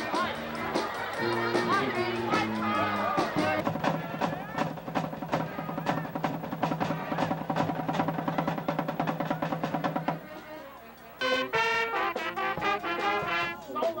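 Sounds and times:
snare and tenor drums cadence: 0:03.2 - 0:14.0.

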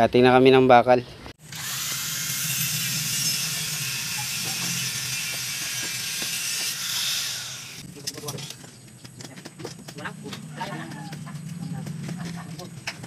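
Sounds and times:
angle grinder cutting steel: 0:01.4 - 0:07.8.

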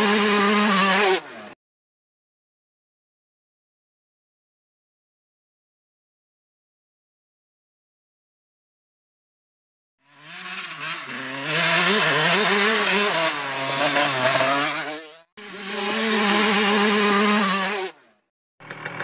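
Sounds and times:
motocross bike engine revving: 0:00.0 - 0:01.6, 0:10.0 - 0:19.0.

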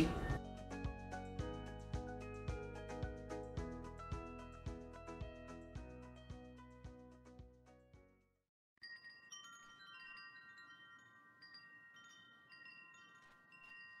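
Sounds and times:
background music: 0:00.0 - 0:07.8
wind chimes tinkling: 0:08.8 - 0:14.0.

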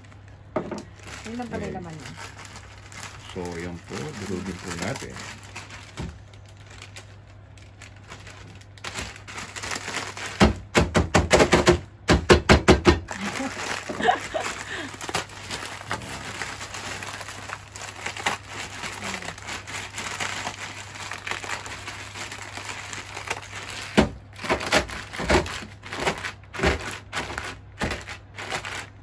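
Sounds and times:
dry noodles crunching: 0:00.0 - 0:10.7, 0:13.1 - 0:29.0
plastic bag crinkling: 0:00.0 - 0:11.7, 0:12.9 - 0:29.0.

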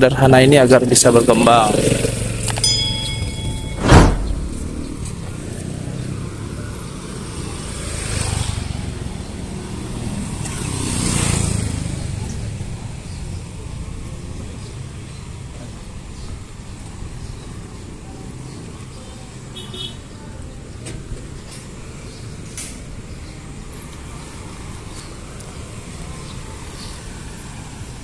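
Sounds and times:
street traffic ambience: 0:00.0 - 0:28.0
vehicles passing: 0:00.8 - 0:19.5
sharp loud click: 0:03.6 - 0:05.2.

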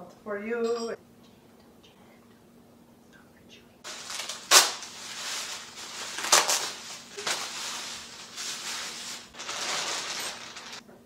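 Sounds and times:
bubble wrap crinkling: 0:03.8 - 0:10.8.

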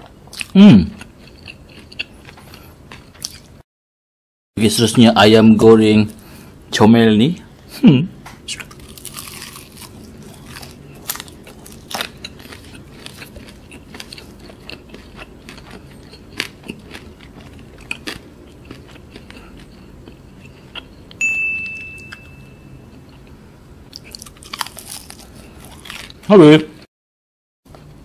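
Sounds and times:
high ringing tone: 0:05.2 - 0:06.1, 0:21.1 - 0:23.2
wet chewing: 0:08.5 - 0:21.0, 0:23.9 - 0:26.2
crisp crunching of fried chicken: 0:08.6 - 0:19.6, 0:24.0 - 0:26.3.

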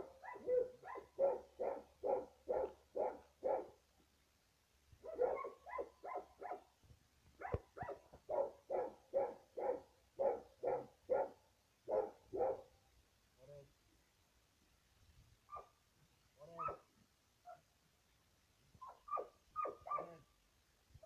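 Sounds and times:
dog barking: 0:00.0 - 0:03.8, 0:05.0 - 0:06.6, 0:07.4 - 0:12.7, 0:15.5 - 0:15.7, 0:16.5 - 0:16.9, 0:18.8 - 0:20.2.

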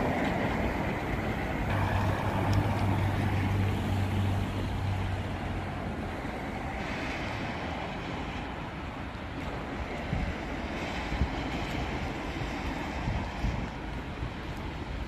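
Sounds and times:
street traffic noise: 0:00.0 - 0:15.0
vehicle engine low hum: 0:01.6 - 0:06.2.

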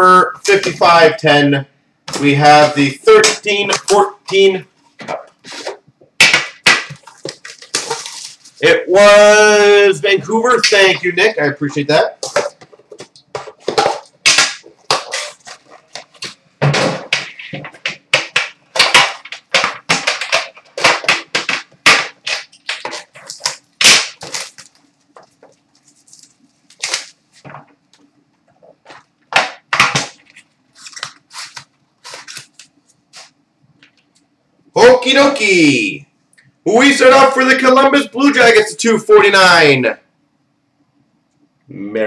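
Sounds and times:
packaging rustling: 0:06.8 - 0:08.6, 0:11.8 - 0:34.1.

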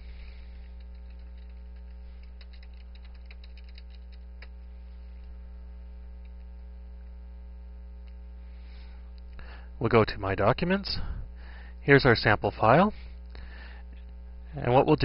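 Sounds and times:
electrical mains hum: 0:00.0 - 0:15.0
quick keyboard clicks: 0:00.6 - 0:04.6.

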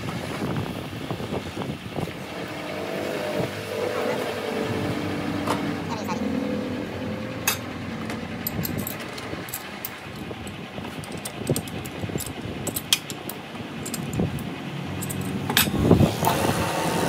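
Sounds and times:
low workshop rumble: 0:00.0 - 0:17.0
metallic clicks and clinks: 0:07.4 - 0:15.8.

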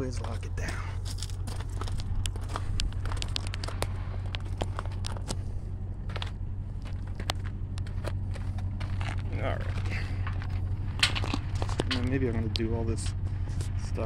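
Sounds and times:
footsteps crunching on gravel: 0:00.0 - 0:14.0
steady low hum: 0:00.0 - 0:14.0
clinks of hitch hardware and chains: 0:09.0 - 0:13.7.

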